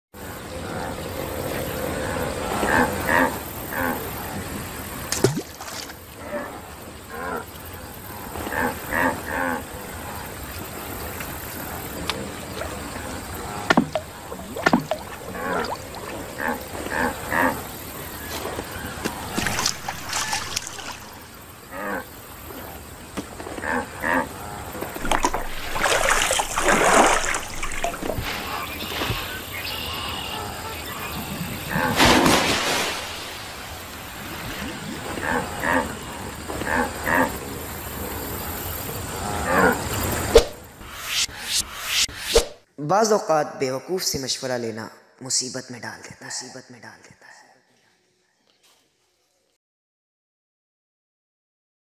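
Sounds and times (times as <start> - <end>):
rushing noise burst: 40.7 - 42.5.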